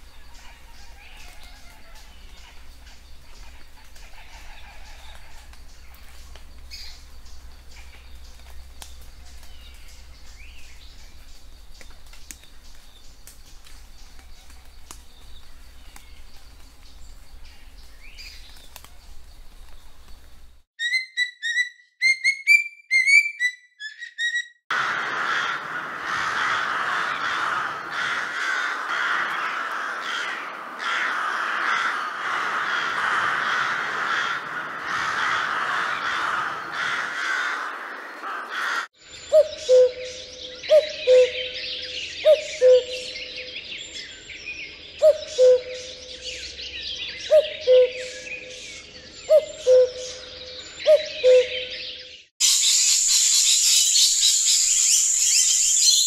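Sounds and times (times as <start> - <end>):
birds chirping: 0.0 - 56.0
cuckoo calling: 20.8 - 24.6, 39.3 - 43.4, 45.0 - 46.4, 47.1 - 48.6, 49.2 - 56.0
crows cawing: 24.7 - 39.0.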